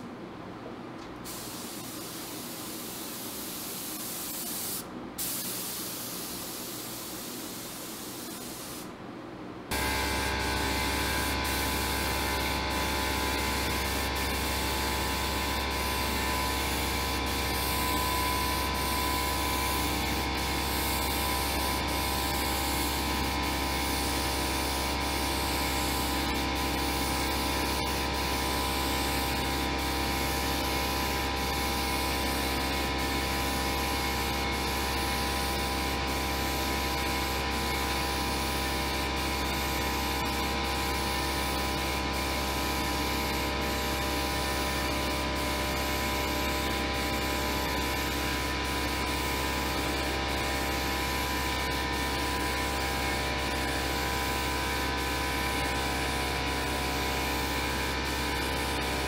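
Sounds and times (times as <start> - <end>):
constant blower hum: 0.0 - 59.0
spray gun hissing: 1.3 - 8.9.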